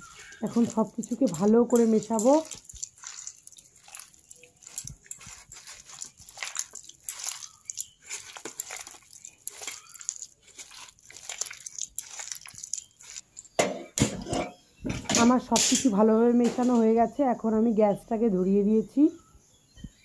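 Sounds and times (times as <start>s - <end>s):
hand squelching wet batter: 0.0s - 13.6s.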